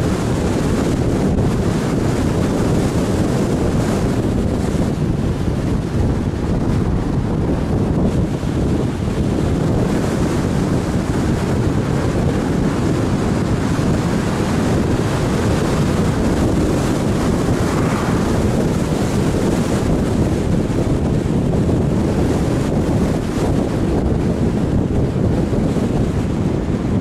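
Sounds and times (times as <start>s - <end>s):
tyres humming on road: 0.0s - 27.0s
wind buffeting microphone: 0.0s - 27.0s
car passing: 15.8s - 20.8s.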